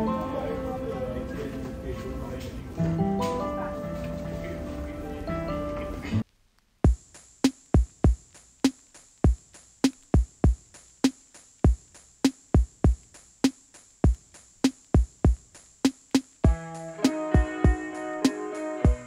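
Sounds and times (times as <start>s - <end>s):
drum-machine kick beat: 6.8s - 19.0s.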